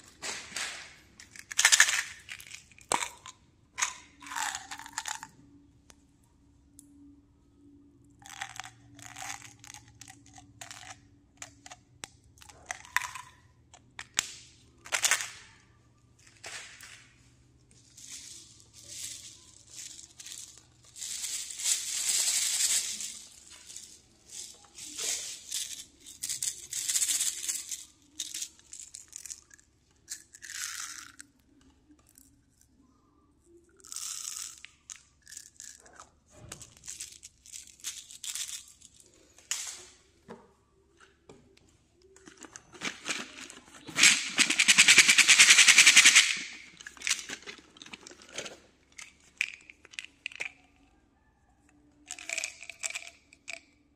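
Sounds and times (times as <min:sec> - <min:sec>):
candy beads shaken from plastic bottle: 0:00.0 - 0:05.3, 0:08.2 - 0:11.8, 0:16.2 - 0:31.2, 0:33.8 - 0:35.9, 0:36.6 - 0:39.8, 0:42.3 - 0:50.6, 0:52.1 - 0:53.6
plastic containers clicking and crinkling: 0:00.0 - 0:05.4, 0:08.2 - 0:15.6, 0:16.2 - 0:32.1, 0:34.0 - 0:50.9, 0:51.8 - 0:53.8.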